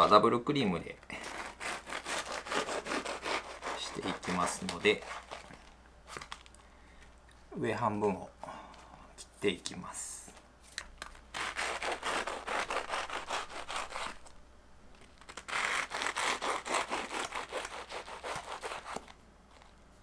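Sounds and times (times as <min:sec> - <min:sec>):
knife sawing through crisp pastry: 0:01.2 - 0:05.5, 0:11.3 - 0:14.2, 0:15.4 - 0:19.1.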